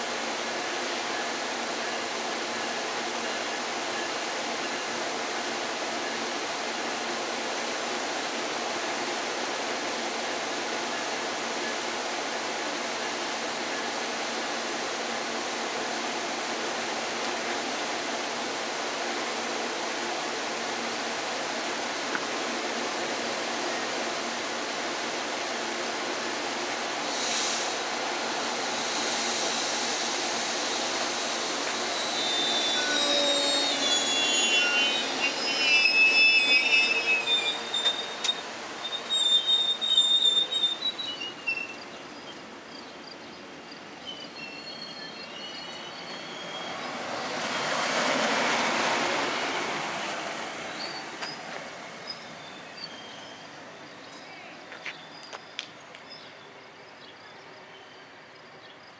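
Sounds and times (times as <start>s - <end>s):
steady hiss from train car: 0.0s - 58.9s
train wheels squealing: 27.1s - 48.7s, 49.4s - 58.9s.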